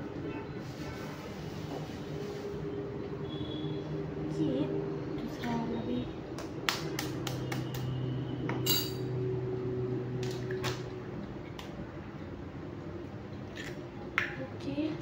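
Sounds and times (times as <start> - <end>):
metal spoon clinking on dish: 8.6 - 9.1.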